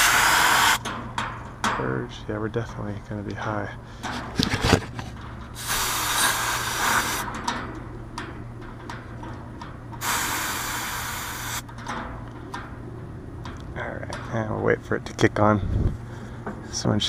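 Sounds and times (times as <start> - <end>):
refrigerant hissing from hoses: 0.0 - 0.8, 5.6 - 7.2, 10.0 - 11.6.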